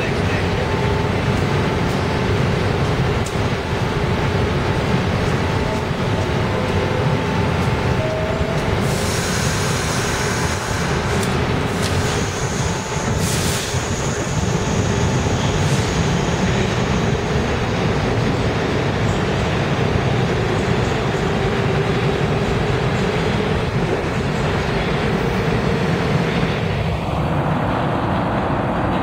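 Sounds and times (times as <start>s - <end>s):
heavy train rumble: 0.0s - 29.0s
subway train doors closing: 0.0s - 29.0s
train pulling out: 0.0s - 29.0s
air hiss: 8.8s - 16.3s.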